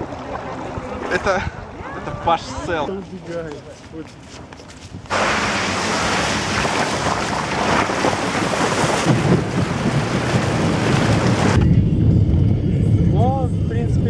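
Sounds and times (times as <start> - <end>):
wind on microphone: 4.7 - 14.0
deep buffeting rumble: 5.0 - 14.0
waterfall rushing: 5.1 - 11.6.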